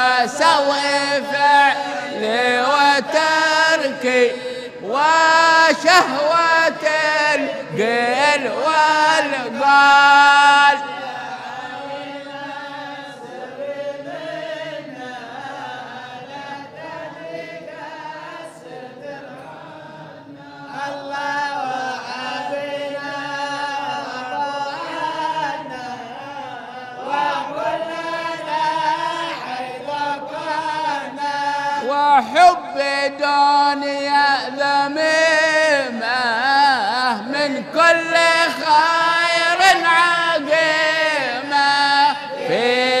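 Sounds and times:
men chanting together: 0.0s - 43.0s.

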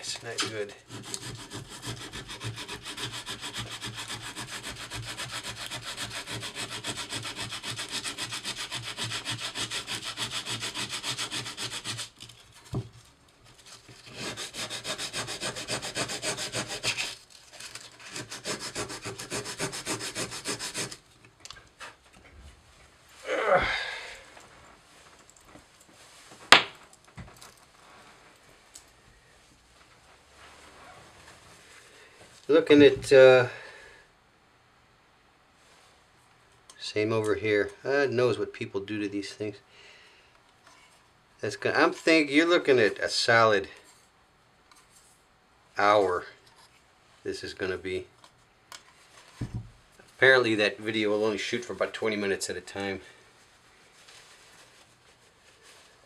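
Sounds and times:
sandpaper scratching on metal: 0.4s - 12.2s, 14.0s - 21.0s
thump: 49.4s - 49.7s.

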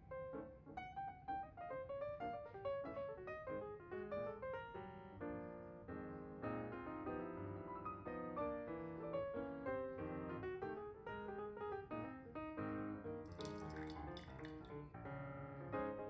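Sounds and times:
piano music: 0.0s - 16.0s
liquid pouring into glass jar: 13.3s - 14.8s.

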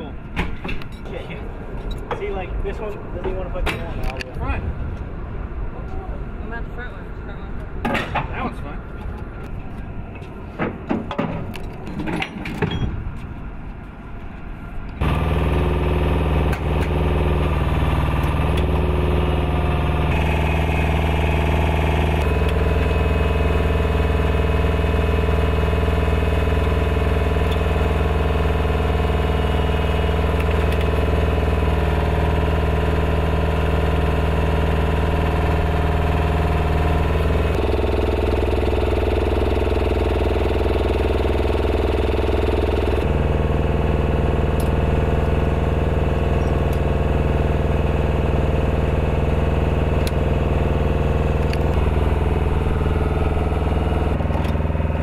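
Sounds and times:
diesel engine idling: 15.0s - 55.0s.

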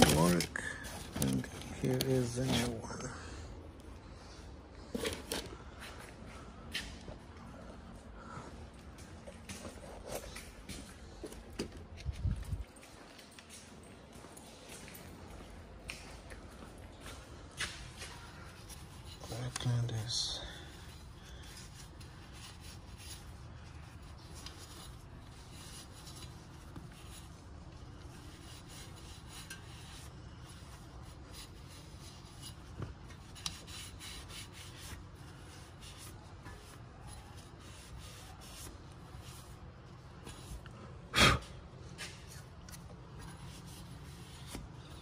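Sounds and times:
rag rubbing on metal spindle: 28.1s - 35.0s.

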